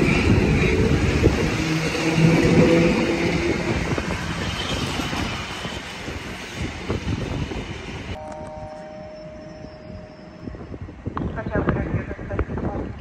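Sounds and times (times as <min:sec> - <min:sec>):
train wheels rumbling on rails: 0:00.0 - 0:08.2.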